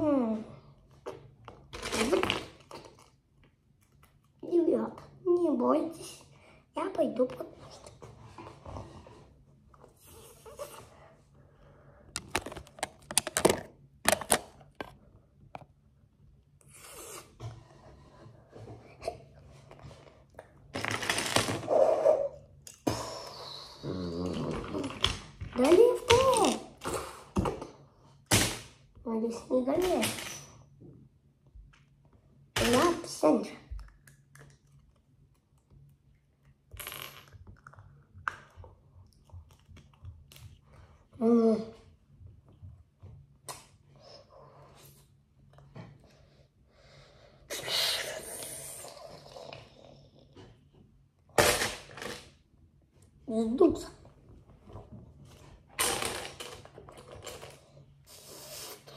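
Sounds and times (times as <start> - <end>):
plastic bricks clicking and clattering: 12.2 - 14.9.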